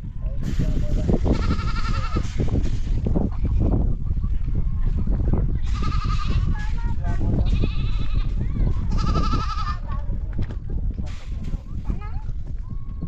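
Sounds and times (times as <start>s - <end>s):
steady low rumble: 0.0s - 13.0s
goats bleating: 1.3s - 2.3s, 5.6s - 6.6s, 7.4s - 9.8s.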